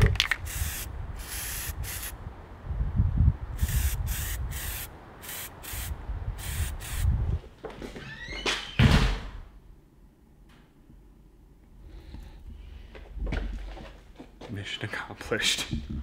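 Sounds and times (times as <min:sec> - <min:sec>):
aerosol can spraying: 0:00.4 - 0:02.1, 0:03.6 - 0:07.1.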